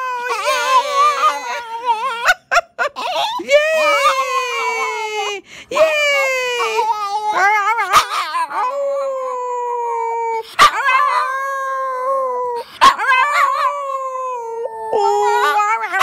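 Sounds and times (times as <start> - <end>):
dog howling: 0.0 - 2.4, 6.6 - 16.0
dog yipping: 7.3 - 8.8, 10.6 - 11.4, 12.8 - 13.7.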